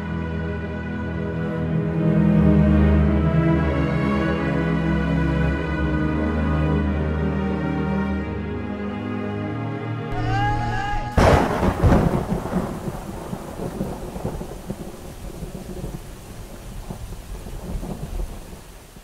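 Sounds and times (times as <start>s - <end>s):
rain hiss: 11.2s - 19.0s
thunder crack and rumble: 11.2s - 19.0s.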